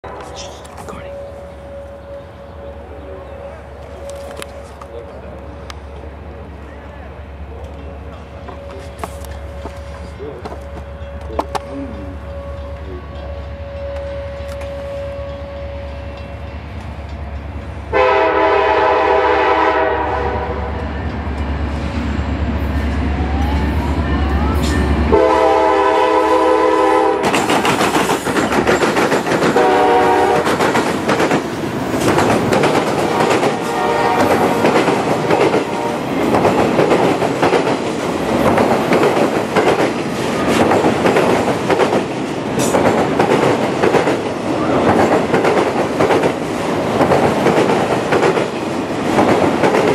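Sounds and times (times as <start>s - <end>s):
train wheels clacking over rail joints: 7.6s - 14.8s, 26.7s - 49.9s
locomotive air horn blasts: 17.9s - 20.8s, 25.1s - 27.3s, 29.6s - 30.5s, 33.1s - 34.6s, 35.7s - 36.1s.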